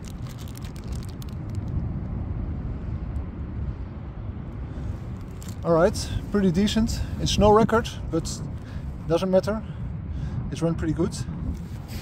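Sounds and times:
plastic bag crinkling: 0.0s - 1.6s
low outdoor rumble: 0.0s - 12.0s.

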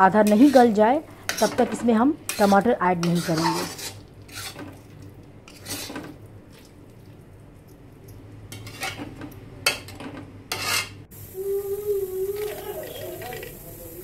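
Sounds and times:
metal spatula scraping pan: 0.2s - 6.2s, 8.5s - 11.0s.

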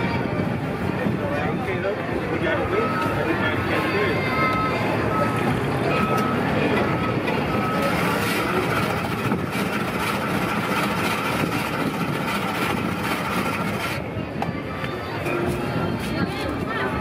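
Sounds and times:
ice shaver grinding ice: 7.4s - 14.0s.

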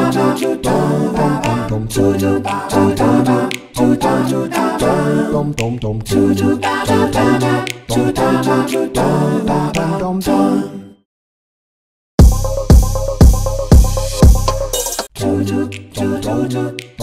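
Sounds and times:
a cappella group singing: 0.0s - 11.0s, 15.2s - 17.0s
sharp percussive clicks: 3.5s - 3.8s, 7.6s - 7.9s.

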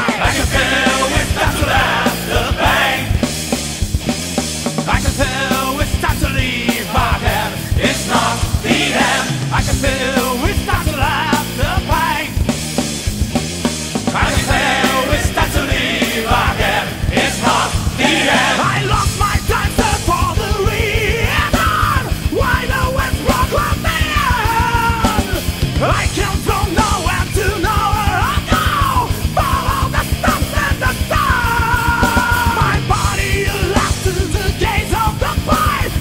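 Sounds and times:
fast steady drumming: 0.0s - 36.0s
loud rock music: 0.0s - 36.0s
person singing: 17.3s - 36.0s.

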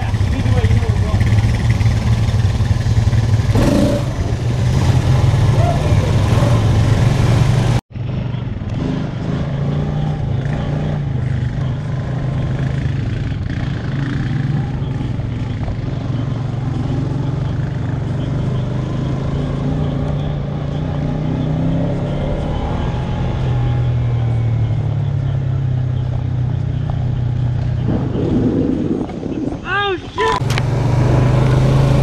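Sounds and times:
quad engine running: 0.0s - 29.0s.

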